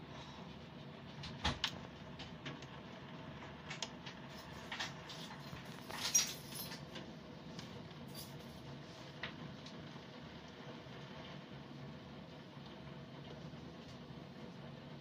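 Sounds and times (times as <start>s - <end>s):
sharp rain taps: 1.0s - 6.0s.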